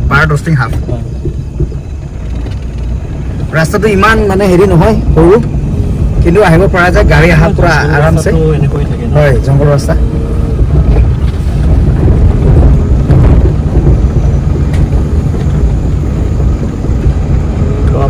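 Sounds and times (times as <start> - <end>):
vehicle rumble: 0.0 - 18.0
wind noise on microphone: 0.0 - 18.0.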